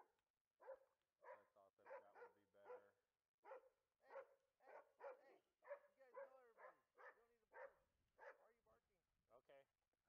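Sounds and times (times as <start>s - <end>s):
faint dog barking: 0.6s - 8.6s.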